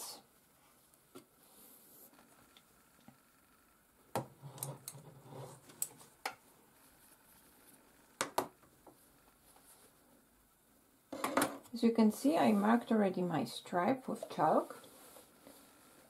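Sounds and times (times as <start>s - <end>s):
soft cloth rustling: 8.9s - 10.3s, 12.0s - 13.3s, 14.1s - 16.0s.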